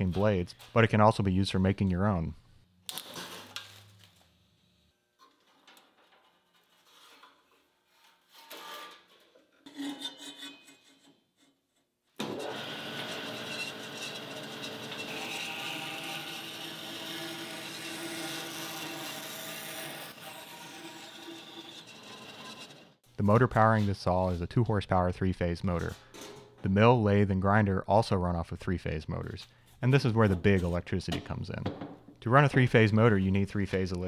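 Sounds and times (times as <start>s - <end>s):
bandsaw cutting wood: 12.2s - 23.0s.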